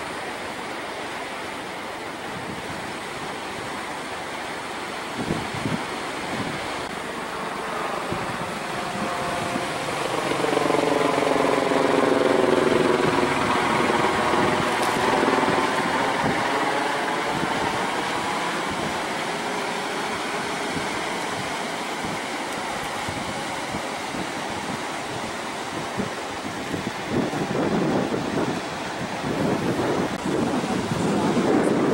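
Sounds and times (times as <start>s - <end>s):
surf: 0.0s - 31.9s
wind: 0.0s - 31.9s
aircraft passing overhead: 6.8s - 31.9s.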